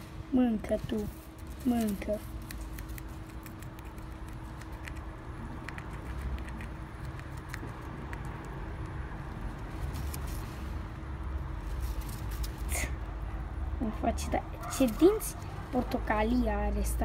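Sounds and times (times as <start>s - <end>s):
low steady rumble: 0.0s - 17.0s
chipmunk teeth biting apple: 2.3s - 9.0s.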